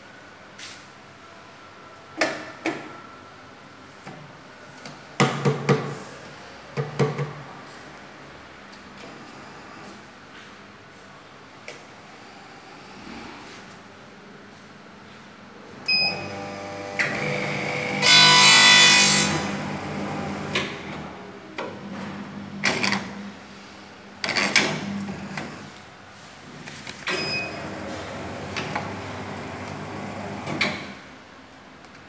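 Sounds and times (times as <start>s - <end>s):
short beep: 27.2s - 27.6s.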